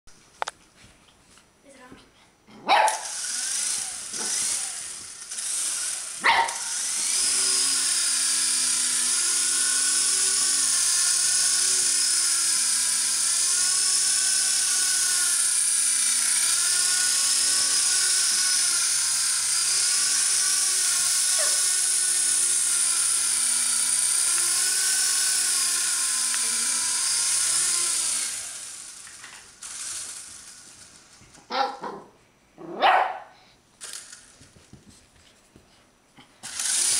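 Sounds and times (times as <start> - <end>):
puppy barking: 2.6 - 3.1, 6.2 - 6.7, 21.4 - 21.6, 31.5 - 33.4
toy helicopter motor whining: 2.9 - 31.5, 33.8 - 34.4, 36.4 - 36.9.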